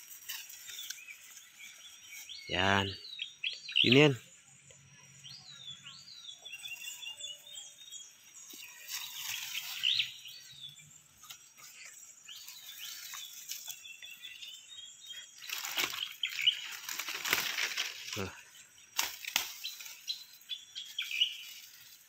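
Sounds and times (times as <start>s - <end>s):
bamboo leaves rustling: 0.0s - 2.4s, 8.4s - 10.5s, 11.2s - 22.0s
birds chirping: 0.0s - 22.0s.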